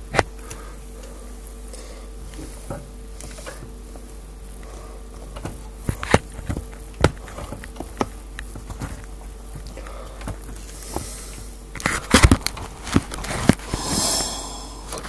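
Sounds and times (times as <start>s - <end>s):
steady hum: 13.4s - 15.0s.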